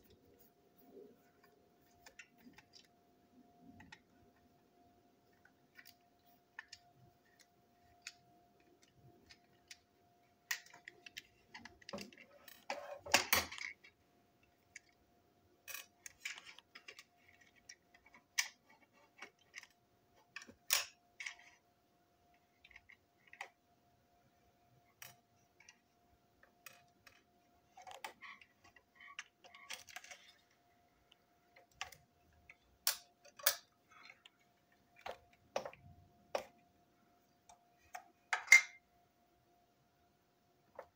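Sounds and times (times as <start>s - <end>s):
faint steady hum: 0.0s - 40.9s
toy parts clicking and rattling: 5.3s - 14.0s, 15.6s - 21.6s, 24.9s - 36.6s.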